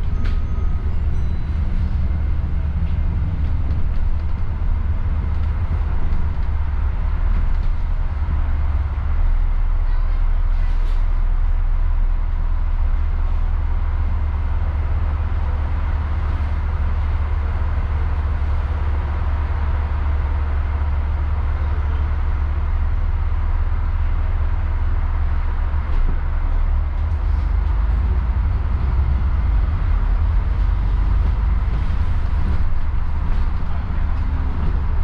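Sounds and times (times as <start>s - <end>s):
bus engine drone: 0.0s - 35.0s
road noise: 0.0s - 35.0s.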